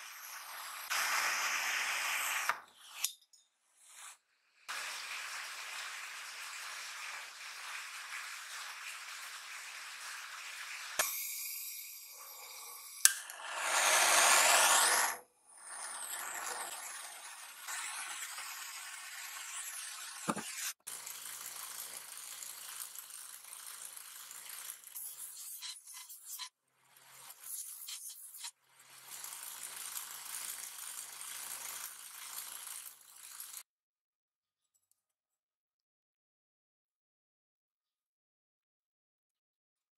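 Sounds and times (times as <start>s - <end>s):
gas torch flame hissing: 0.0s - 3.0s, 4.7s - 15.2s
metal grinding on sanding belt: 12.2s - 33.6s
belt sander motor hum: 13.3s - 15.2s.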